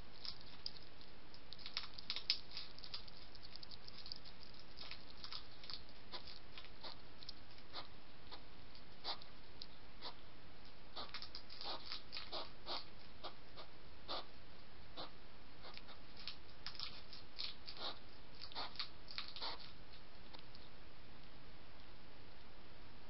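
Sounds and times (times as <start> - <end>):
hedgehog clicks and crunches on gravel: 0.1 - 7.9, 11.0 - 12.9, 15.0 - 20.6.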